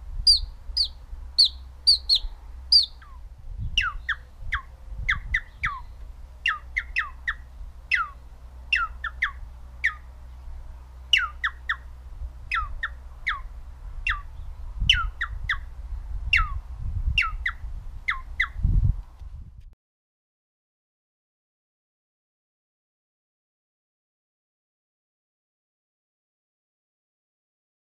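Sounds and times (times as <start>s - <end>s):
finger whistling bird calls: 0.3s - 3.2s, 6.5s - 8.2s, 11.2s - 11.8s, 14.9s - 15.6s.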